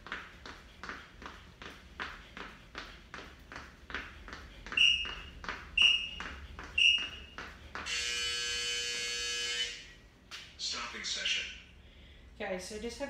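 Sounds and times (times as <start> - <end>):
high-pitched countdown beeps: 4.8 - 6.2, 6.8 - 7.3.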